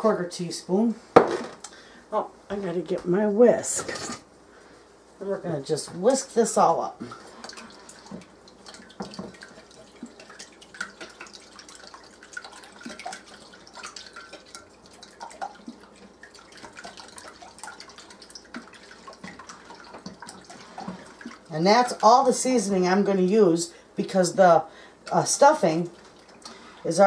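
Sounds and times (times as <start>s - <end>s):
liquid slapping from whisking: 7.0s - 22.1s.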